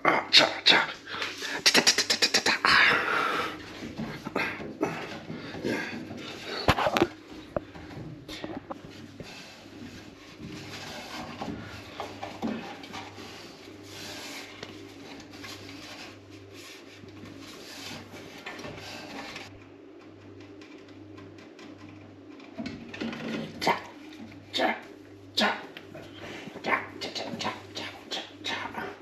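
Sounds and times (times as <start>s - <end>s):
low steady hum: 0.0s - 29.0s
rubbing on wooden stairs: 3.5s - 19.5s.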